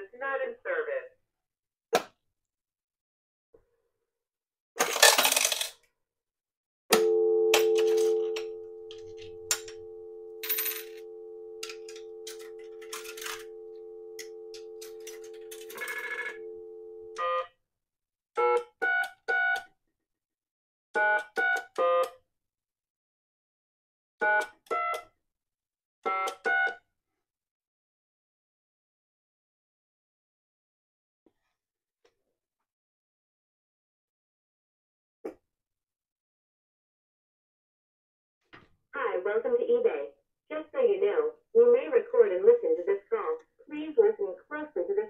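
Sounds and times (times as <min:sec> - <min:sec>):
coins clicking into slot: 0:04.8 - 0:05.8
two-tone dial tone: 0:06.9 - 0:17.4
touch-tone beeps: 0:07.0 - 0:17.2.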